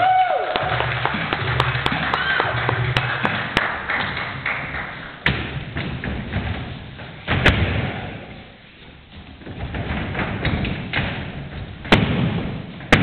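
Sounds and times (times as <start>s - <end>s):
footsteps on wooden stage: 1.2s - 13.0s
sharp thud: 11.8s - 13.0s.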